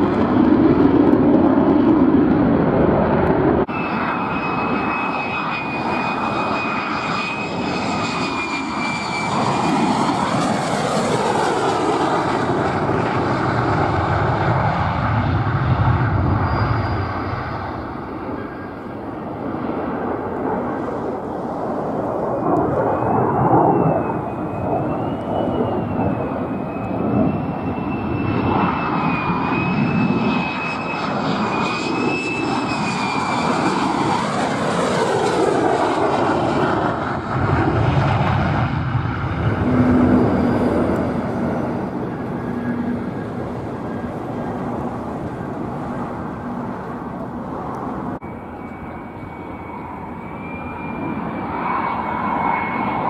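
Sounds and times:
jet engine roaring: 0:00.0 - 0:53.0.

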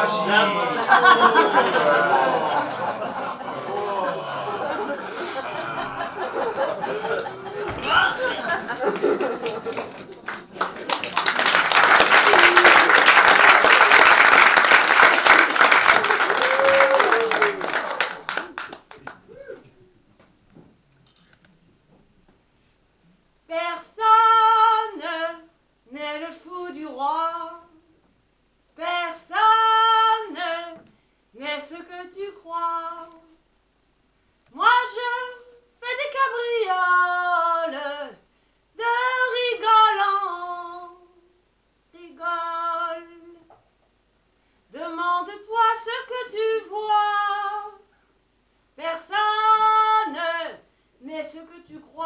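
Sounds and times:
woman singing unaccompanied: 0:23.5 - 0:27.9, 0:28.8 - 0:33.4, 0:34.5 - 0:43.6, 0:44.7 - 0:47.9, 0:48.8 - 0:52.0.

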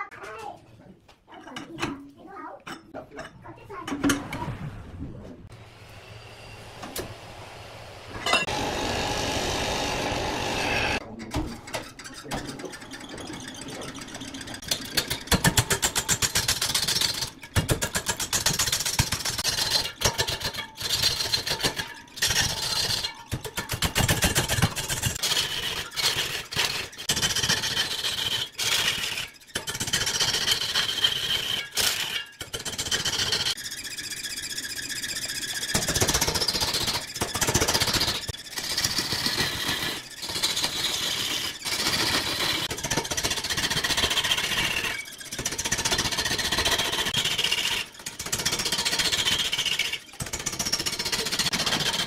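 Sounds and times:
power tool cutting wood: 0:05.6 - 0:11.0.

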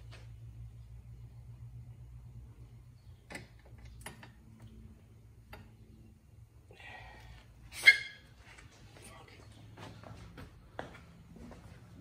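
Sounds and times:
faint low hum: 0:00.0 - 0:07.7.

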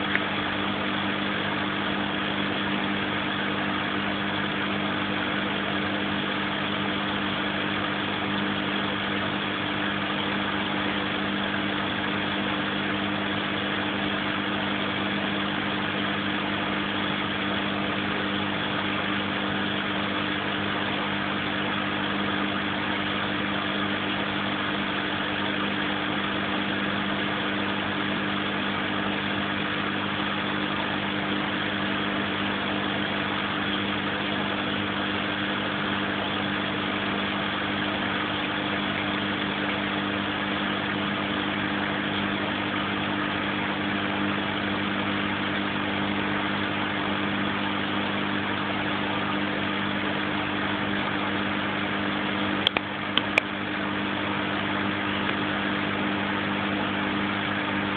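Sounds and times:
mechanical hum: 0:00.0 - 0:57.9
sharp clicks: 0:52.6 - 0:53.5.

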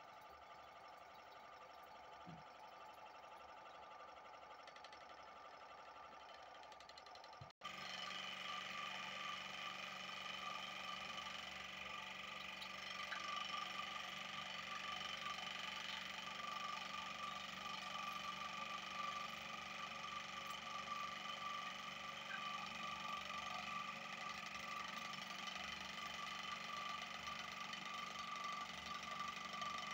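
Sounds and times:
electric toothbrush humming: 0:07.7 - 0:29.9.

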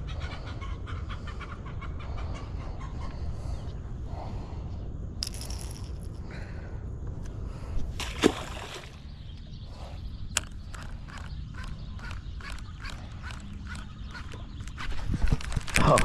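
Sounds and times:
steady low rumble: 0:00.0 - 0:16.0
fish splashing into water: 0:08.0 - 0:09.0.

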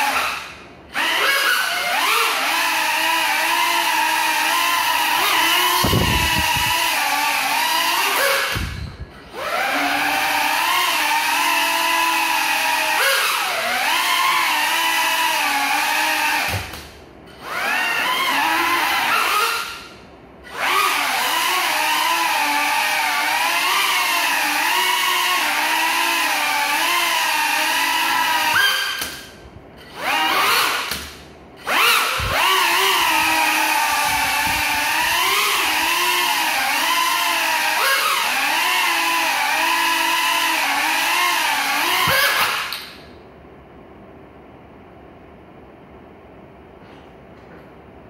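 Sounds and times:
drone motors whining: 0:00.0 - 0:16.8, 0:20.5 - 0:43.0.

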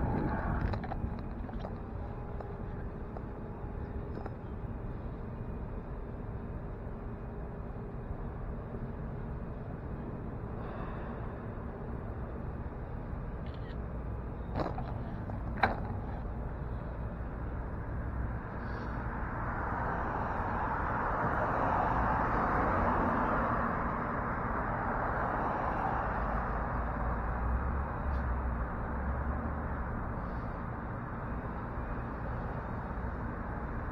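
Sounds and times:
city street traffic: 0:00.0 - 0:33.9
vehicle passing by: 0:18.6 - 0:30.4.

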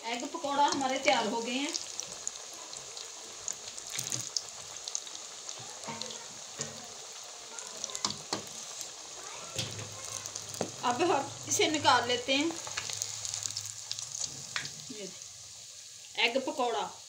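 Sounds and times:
oil popping and crackling: 0:00.0 - 0:16.2
food deep-frying in hot oil: 0:00.0 - 0:17.0.

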